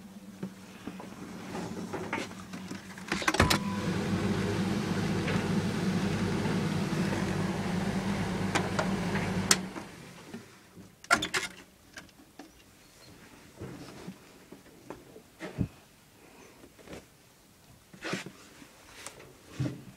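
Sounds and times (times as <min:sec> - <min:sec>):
tumble dryer humming: 0:03.3 - 0:10.4.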